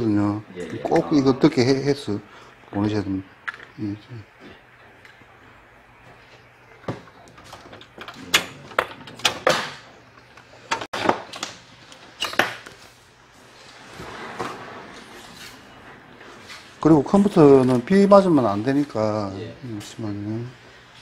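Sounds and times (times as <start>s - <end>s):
soft rustle: 12.8s - 19.0s.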